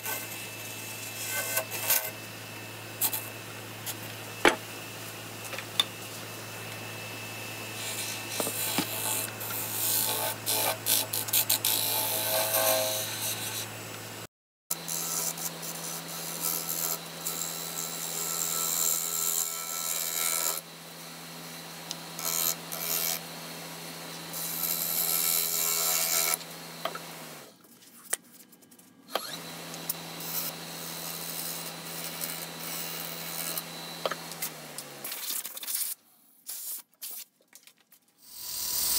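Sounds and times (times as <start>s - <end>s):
gouge scraping spinning wood: 0.0s - 13.8s
wood lathe motor humming: 0.0s - 14.2s, 29.1s - 35.0s.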